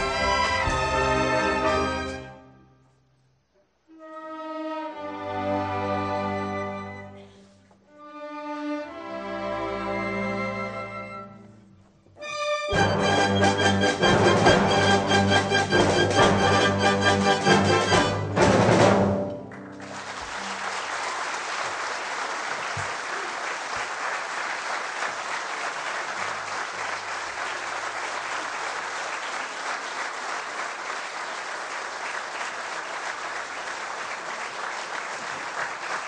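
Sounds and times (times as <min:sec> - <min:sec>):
orchestra playing a tango: 0:00.0 - 0:02.7, 0:03.9 - 0:20.9
audience applause: 0:19.3 - 0:36.0.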